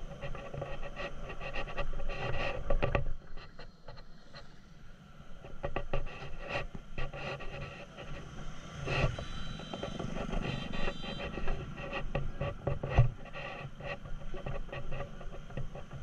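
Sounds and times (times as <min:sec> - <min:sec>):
microphone rub noise: 0:05.4 - 0:16.0.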